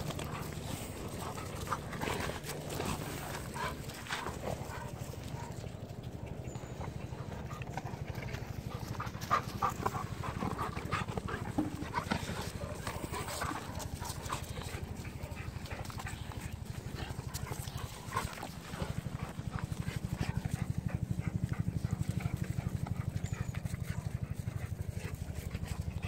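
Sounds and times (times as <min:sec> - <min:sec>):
dogs barking: 0:00.0 - 0:06.0, 0:06.8 - 0:26.0.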